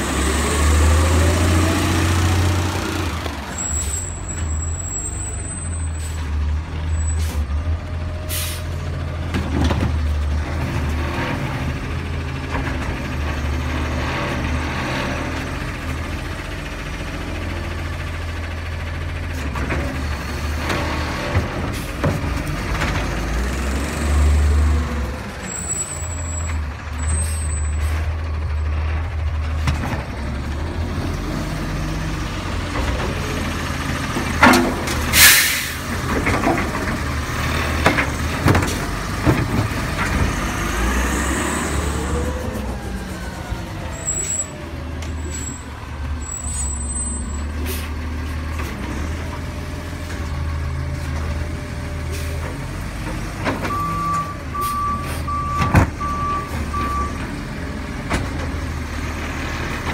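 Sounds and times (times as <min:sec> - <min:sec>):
garbage truck engine drone: 0:00.0 - 0:59.9
air brake hiss: 0:08.3 - 0:08.8, 0:35.1 - 0:35.8.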